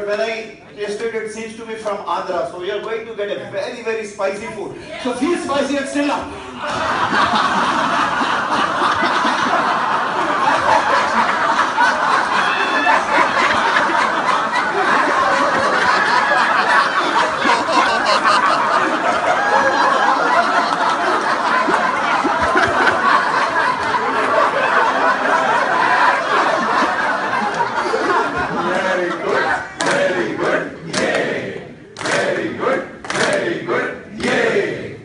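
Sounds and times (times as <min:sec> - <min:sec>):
group of people laughing: 0:06.2 - 0:30.6.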